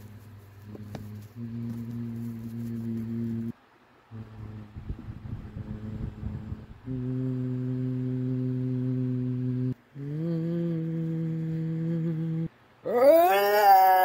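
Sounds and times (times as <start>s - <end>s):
person humming low notes: 0.0s - 14.0s.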